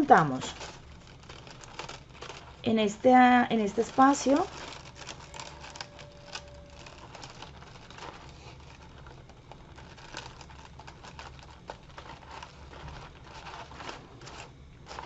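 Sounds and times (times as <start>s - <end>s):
crepe paper crackling: 0.0s - 15.0s
low steady hum: 0.0s - 15.0s.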